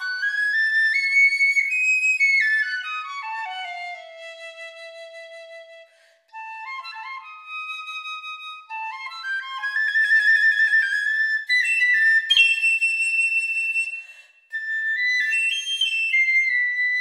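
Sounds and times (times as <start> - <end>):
piccolo playing fast melody: 6.4 - 14.0, 14.6 - 17.0.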